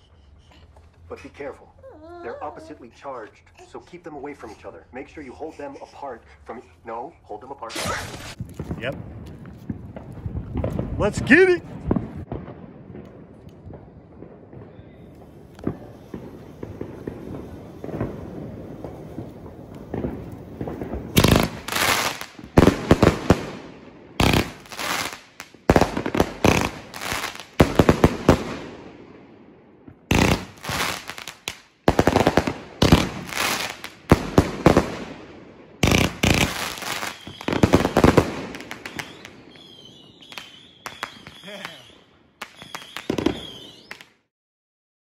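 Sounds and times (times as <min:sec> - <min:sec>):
fireworks banging: 0:07.7 - 0:44.2.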